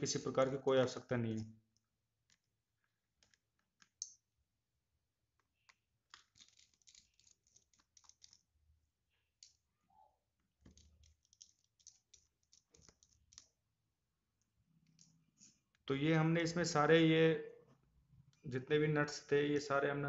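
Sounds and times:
small screwdriver clicks and scratches: 3.2 - 4.2, 5.4 - 8.5, 10.6 - 13.6.

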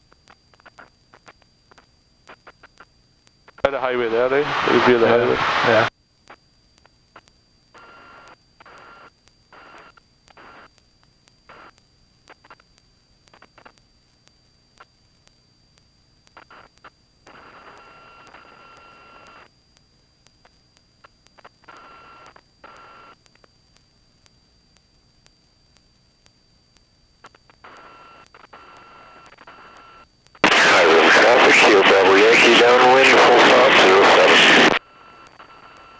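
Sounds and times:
faint electrical whine: 0.0 - 35.9
radio static hiss bursts: 0.0 - 35.9
light regular ticking: 19.7 - 30.5.

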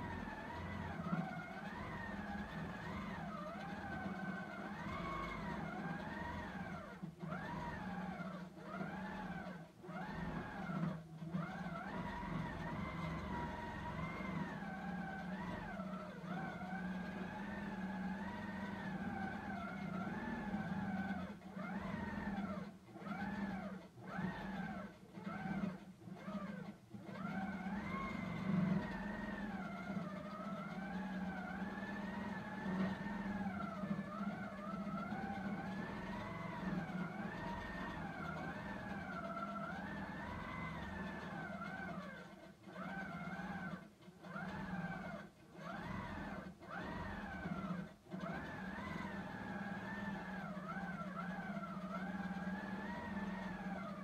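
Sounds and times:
quilting machine motor hum: 0.0 - 54.0.

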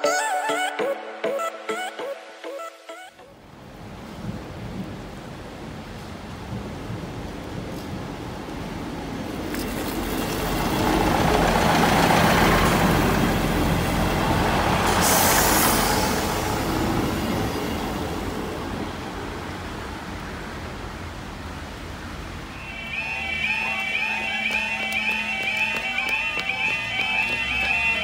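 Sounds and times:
large vehicle passing: 10.0 - 19.7, 22.2 - 28.0
sharp hiss of air: 14.7 - 17.6.

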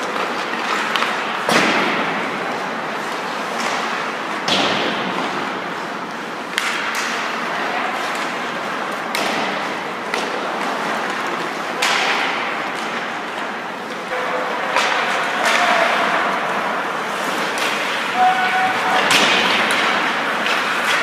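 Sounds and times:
pucks and sticks cracking: 0.0 - 21.0
skates scraping on ice: 5.0 - 21.0.

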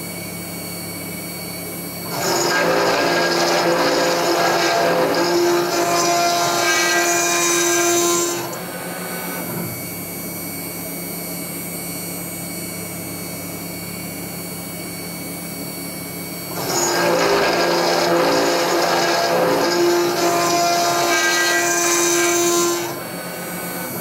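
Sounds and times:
router cutting steel grinding: 2.0 - 9.8, 16.3 - 24.0.

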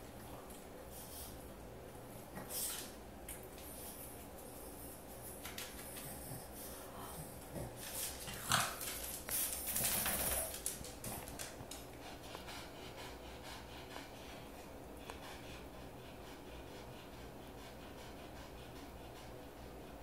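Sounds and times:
dog breathing: 5.7 - 19.9
dog moving on wooden floor: 7.8 - 11.9.

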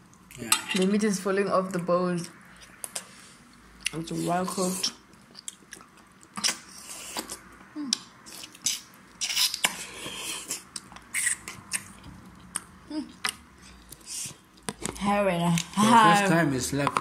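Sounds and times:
chewing: 2.2 - 14.8.

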